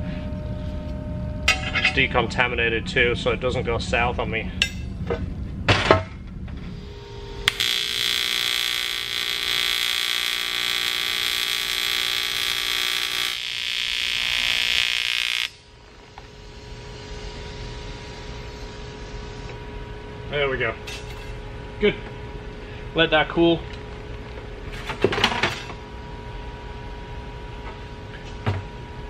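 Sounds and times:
welding arc buzzing: 6.9s - 19.5s
welding arc strike click: 7.5s - 15.6s.

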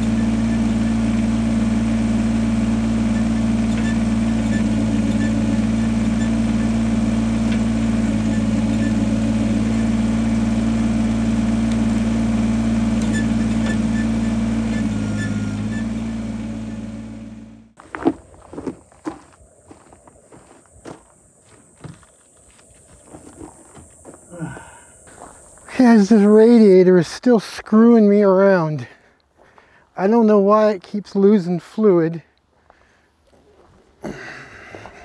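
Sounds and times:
vehicle engine running steadily: 0.0s - 18.1s, 23.8s - 26.2s.

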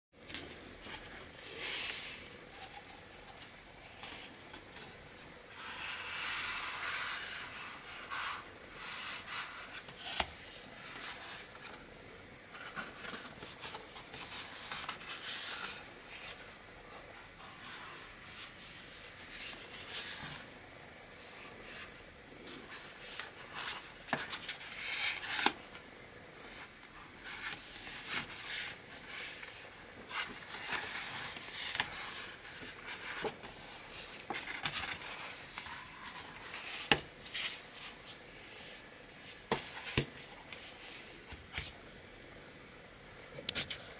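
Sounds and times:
book pages rustling: 12.5s - 20.5s, 21.2s - 25.6s, 26.5s - 41.8s.

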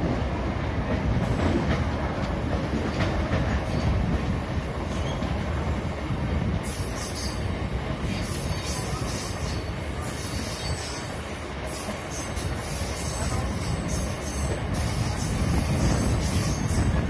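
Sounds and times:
train wheels rumbling on track: 0.0s - 17.0s.

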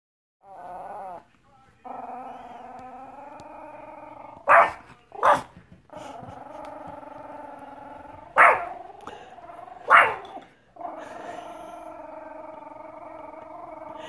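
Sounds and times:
small dog growling: 0.4s - 4.5s, 5.9s - 14.0s
small dog barking: 4.4s - 5.5s, 8.4s - 8.7s, 9.8s - 10.3s.

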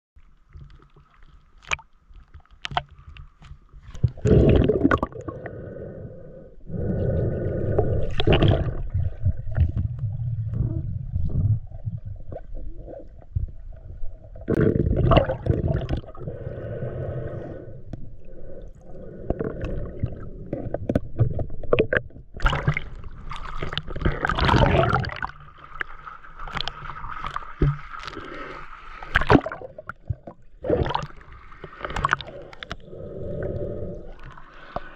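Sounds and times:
water sloshing and splashing: 0.2s - 5.3s, 7.8s - 16.2s, 19.4s - 33.0s.

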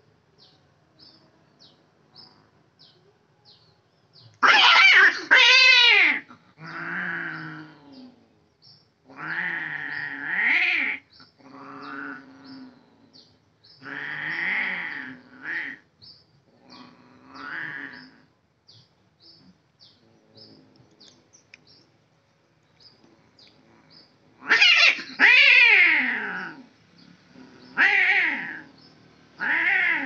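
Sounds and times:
cats yowling and growling: 4.4s - 8.3s, 9.0s - 13.1s, 13.8s - 15.9s, 16.5s - 18.3s, 23.6s - 30.0s.

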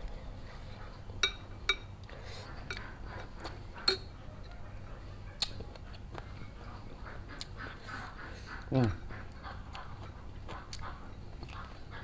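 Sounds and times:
cutlery clinking on ceramic bowls: 1.2s - 1.9s, 3.8s - 4.1s.

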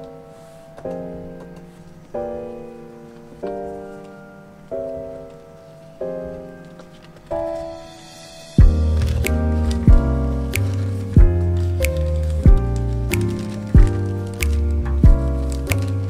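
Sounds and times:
slow piano chords: 0.0s - 16.0s.

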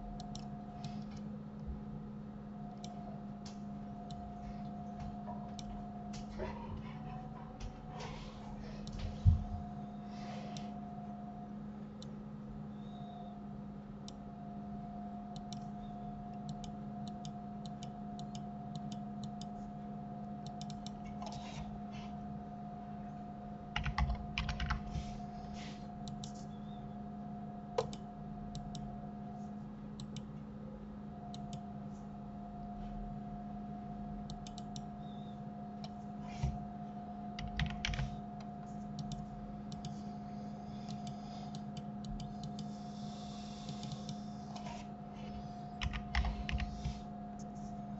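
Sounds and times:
low electrical hum: 0.0s - 47.9s
keyboard typing: 23.8s - 25.0s, 37.4s - 40.0s, 45.7s - 47.0s.

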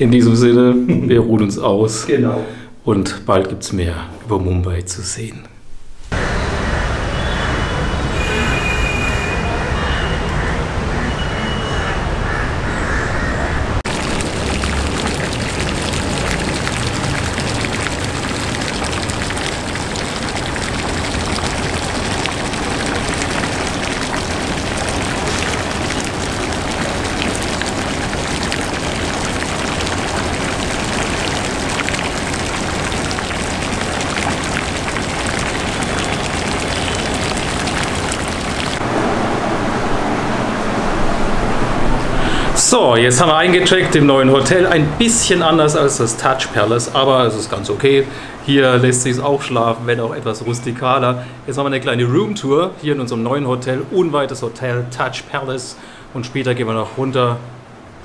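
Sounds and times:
fountain splashing into pool: 13.8s - 38.8s.

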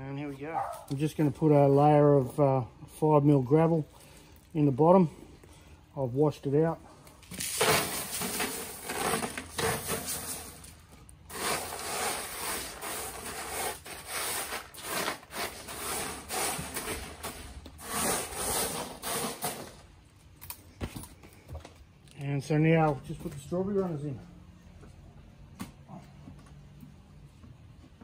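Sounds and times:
gravel being swept by hand: 7.4s - 19.8s.

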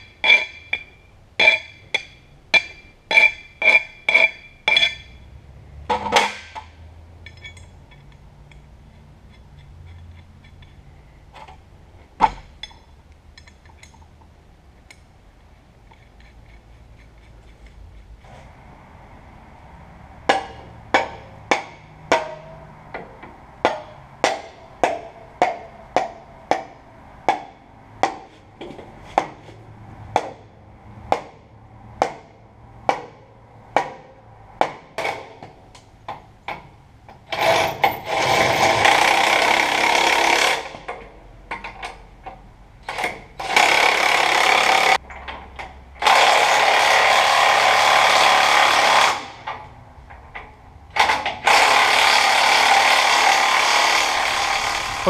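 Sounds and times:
mallet striking steel: 0.0s - 5.2s, 20.3s - 28.3s
power tool running: 51.4s - 55.0s.

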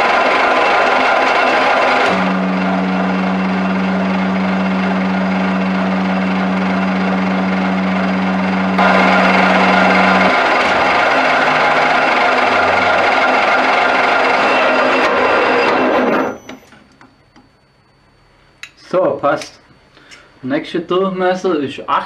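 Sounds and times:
lathe cutting metal: 0.0s - 16.5s
steady low hum: 0.7s - 15.0s.

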